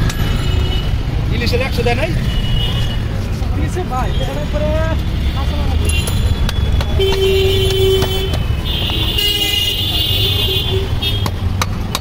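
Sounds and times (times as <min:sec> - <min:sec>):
road traffic rumbling: 0:00.0 - 0:12.0
low vehicle horn: 0:07.0 - 0:11.3.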